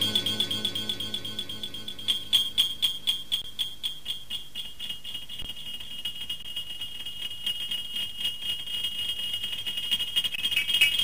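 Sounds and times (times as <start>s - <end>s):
pulsing high-pitched electronic tone: 0.0s - 3.9s.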